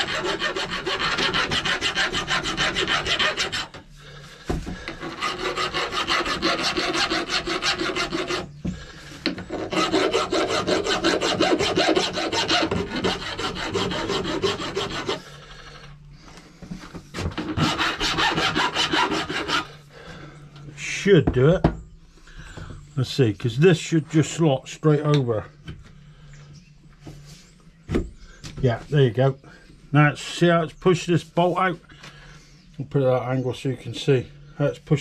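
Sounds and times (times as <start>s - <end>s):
hand file scraping metal: 0.0s - 3.9s, 4.8s - 8.6s, 9.2s - 15.3s, 17.4s - 19.8s.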